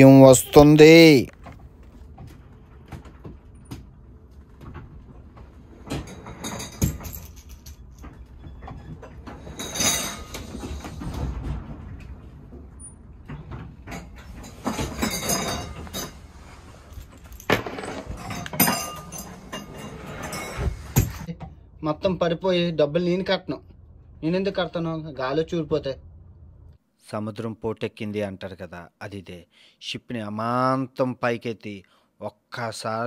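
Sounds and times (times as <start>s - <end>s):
objects rattling and knocking: 1.3s - 21.6s.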